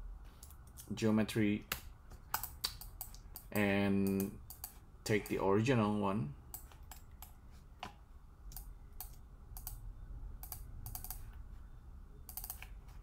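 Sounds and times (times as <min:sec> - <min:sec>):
faint low hum: 0:00.0 - 0:13.0
keyboard and mouse clicks: 0:01.7 - 0:05.4, 0:06.5 - 0:09.8, 0:10.4 - 0:11.4, 0:12.2 - 0:12.9.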